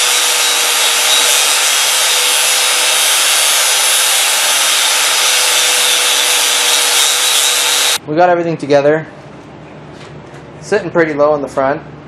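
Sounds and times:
angle grinder cutting steel: 0.0s - 8.0s.

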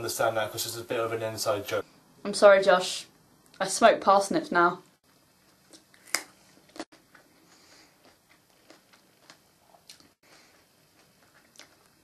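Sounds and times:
chewing crunchy vegetable: 5.7s - 12.0s.

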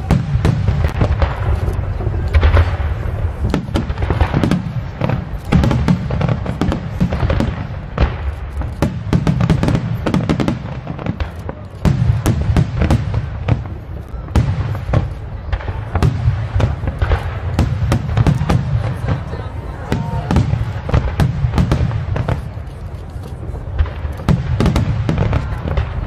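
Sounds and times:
fireworks bangs: 0.0s - 26.0s.

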